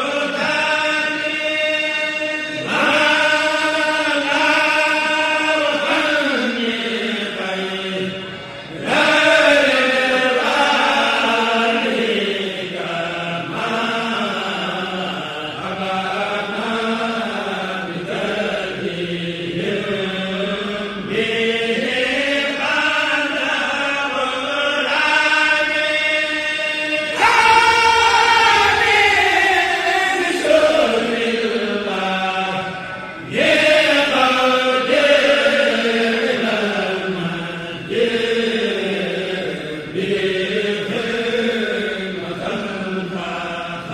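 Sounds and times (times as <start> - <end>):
person chanting a devotional poem: 0.0 - 43.9
group of voices chanting: 26.7 - 43.9.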